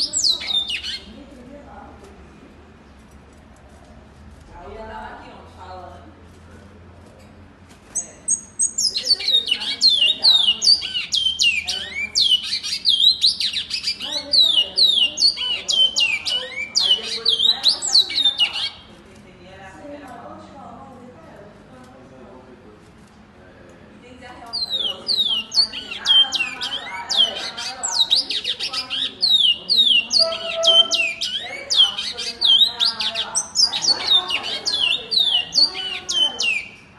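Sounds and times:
finch singing whistled notes: 0:24.6 - 0:36.8.

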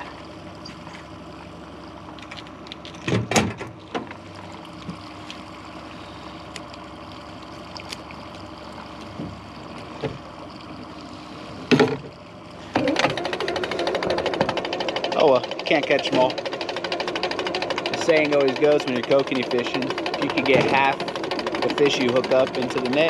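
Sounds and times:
outboard motor humming: 0:00.0 - 0:23.0.

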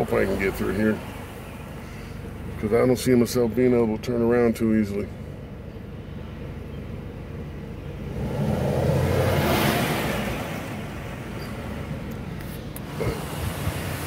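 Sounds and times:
car engine idling: 0:00.0 - 0:14.0
car driving past: 0:08.1 - 0:12.0.

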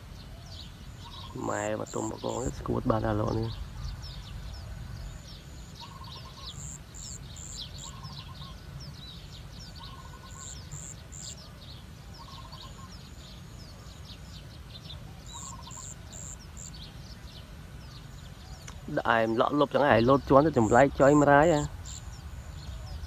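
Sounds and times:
small birds chirping: 0:00.0 - 0:23.0
steady low rumble: 0:00.0 - 0:23.0
stuttering lower bird call: 0:00.0 - 0:23.0.

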